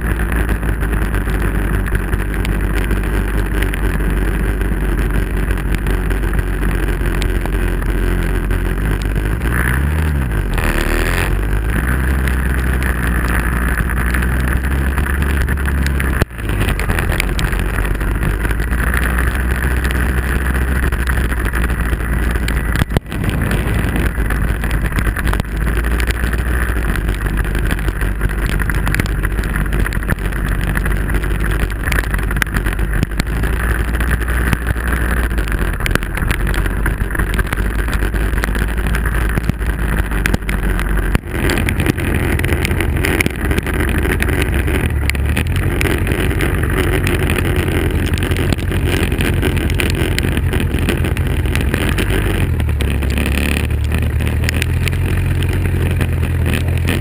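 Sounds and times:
racing car engine running: 0.0s - 57.0s
tyres hissing on wet road: 0.0s - 57.0s.

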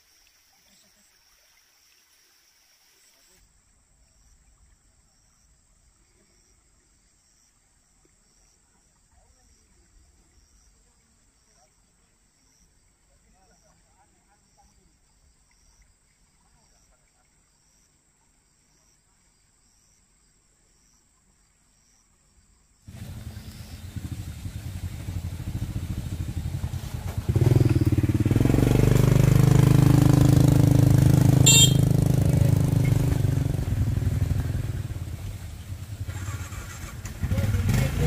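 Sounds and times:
motorcycle engine running: 22.9s - 38.0s.

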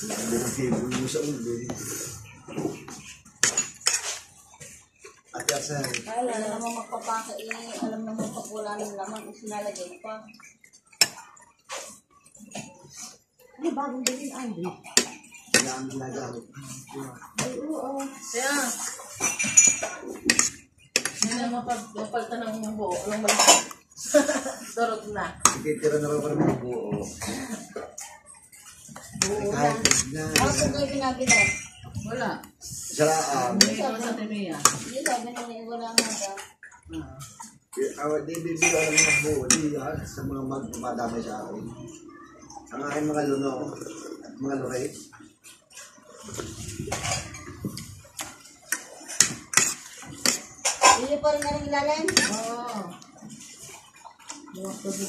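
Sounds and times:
cutlery clinking on a plate: 19.1s - 21.4s, 23.2s - 23.8s, 38.4s - 39.8s, 48.8s - 51.1s.

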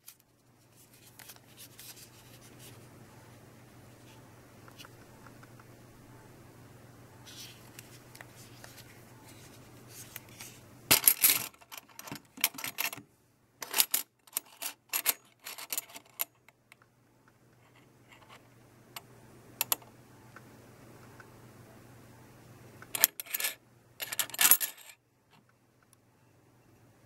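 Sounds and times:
coins clinking in plastic tub: 10.9s - 13.0s, 13.6s - 16.3s, 23.0s - 25.0s.

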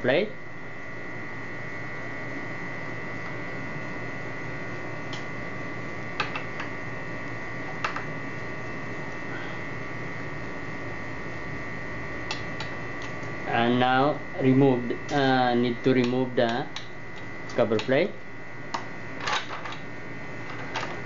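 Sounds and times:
electrical hum with high whine: 0.0s - 21.0s.

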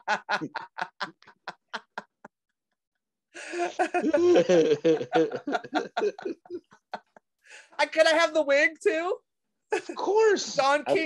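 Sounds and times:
people laughing: 0.0s - 2.5s, 3.4s - 7.2s.

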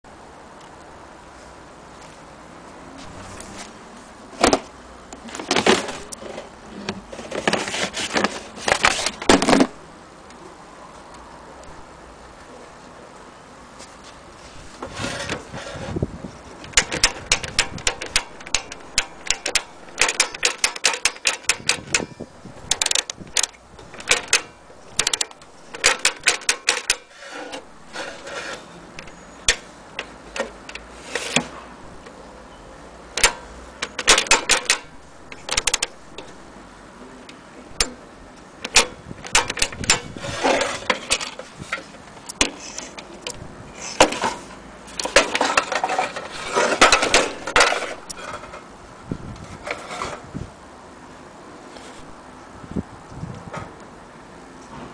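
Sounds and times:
toy typewriter clicking: 16.6s - 27.1s, 33.2s - 36.3s.

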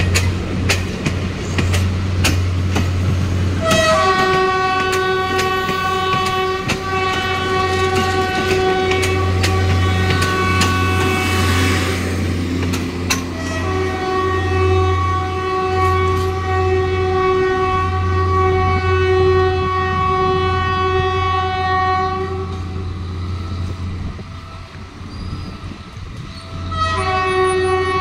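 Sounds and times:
train horn blast: 3.6s - 12.2s, 13.3s - 22.9s, 26.5s - 28.0s.

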